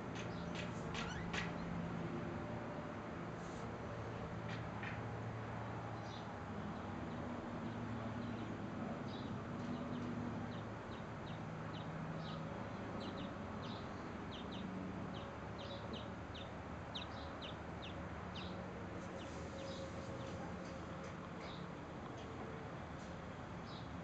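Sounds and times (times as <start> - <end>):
bird chirping: 13.0 - 18.6.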